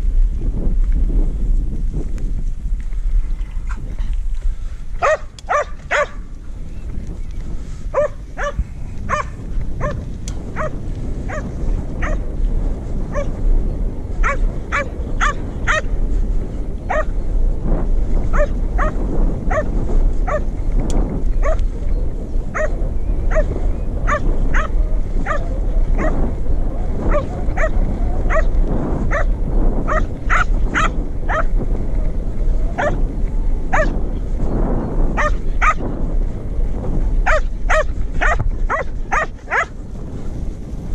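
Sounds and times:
steady low rumble: 0.0 - 40.9
dog barking sharply: 5.0 - 6.2.

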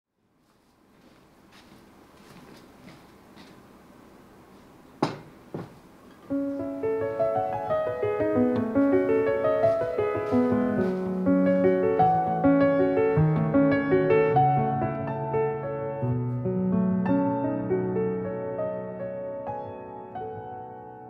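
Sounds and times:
solo piano music: 5.9 - 21.0.

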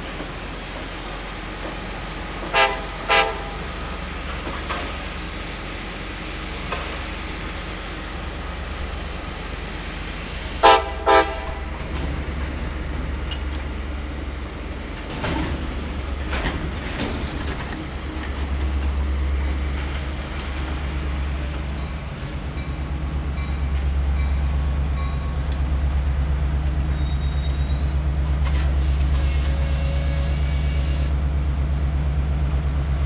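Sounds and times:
rail cars rumbling: 0.0 - 33.0
train horn toots: 2.4 - 3.7, 10.6 - 11.8, 29.2 - 31.1.

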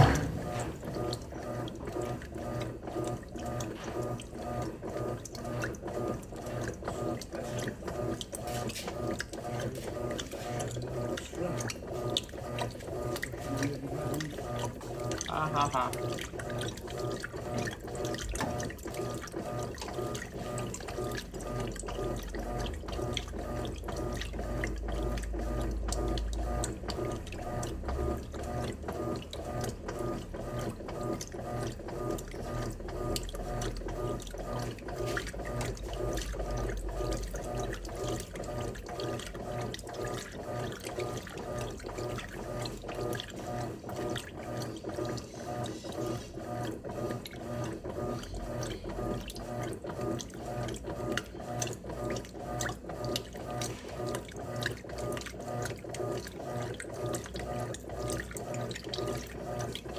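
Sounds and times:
washing machine water sloshing: 0.0 - 59.9.

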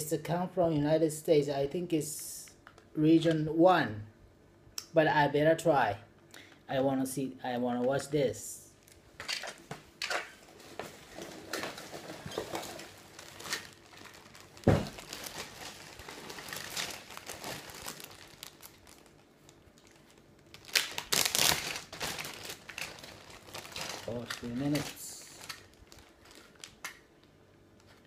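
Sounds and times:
packaging crinkling: 10.4 - 28.0.

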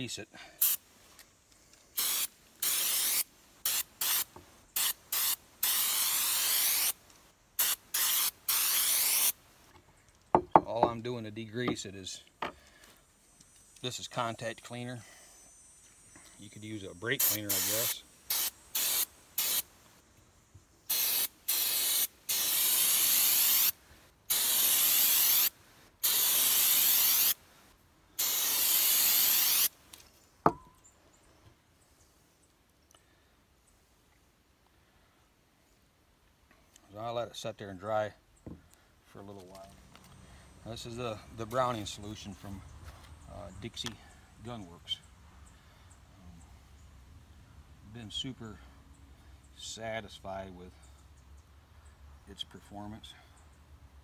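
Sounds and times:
aerosol can spraying: 0.6 - 0.8, 2.0 - 7.0, 7.6 - 9.4, 17.2 - 19.7, 20.9 - 27.4, 28.2 - 29.7.

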